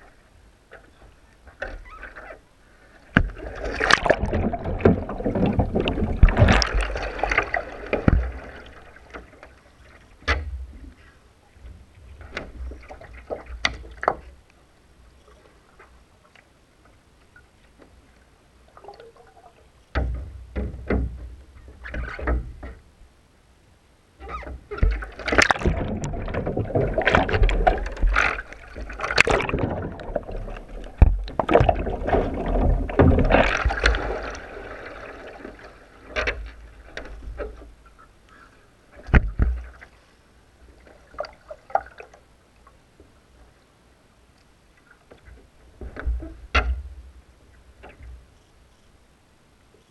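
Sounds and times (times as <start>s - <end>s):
churning sloshing water: 2.9s - 14.4s, 24.4s - 40.0s, 40.6s - 42.3s
hull and paddle knocks: 3.2s - 8.4s, 19.9s - 22.8s, 24.3s - 34.3s, 39.0s - 39.8s
small splashes and drips: 40.8s - 42.2s.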